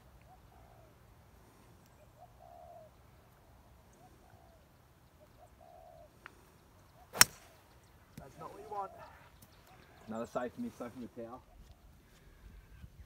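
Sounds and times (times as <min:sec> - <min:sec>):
dove cooing: 0:02.0 - 0:03.0, 0:05.2 - 0:06.2.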